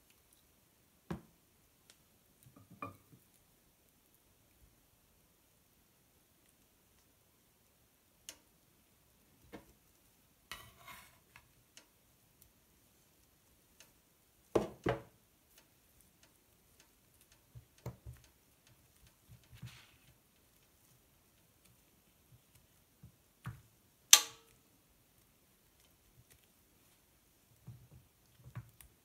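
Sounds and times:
metal spatula scraping on slate board: 10.5s - 11.4s.

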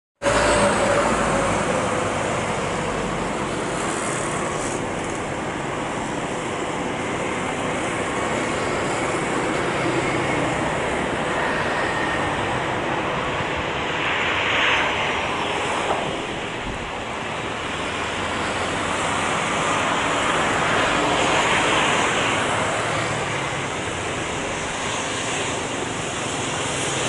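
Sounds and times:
jet engine noise: 0.2s - 27.0s.

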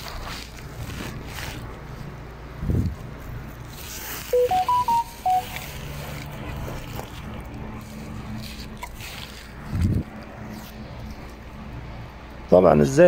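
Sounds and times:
electronic beeping melody: 4.4s - 5.7s.

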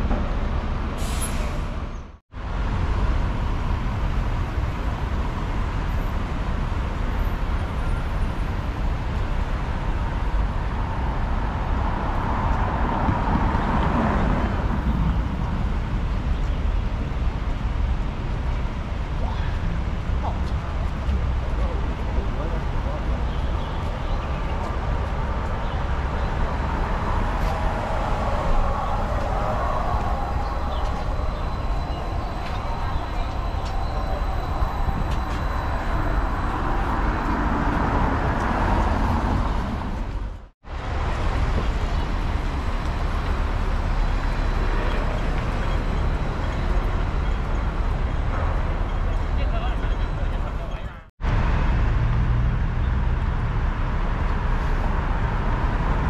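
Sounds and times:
street traffic rumble: 0.0s - 56.0s
electric bus whine: 23.2s - 56.0s.

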